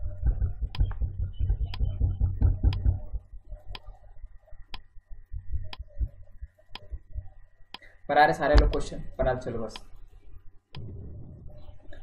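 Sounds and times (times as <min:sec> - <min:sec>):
timer ticking: 0:00.0 - 0:03.8, 0:08.6 - 0:08.9
low rumbling noise: 0:00.0 - 0:04.4, 0:10.8 - 0:12.0.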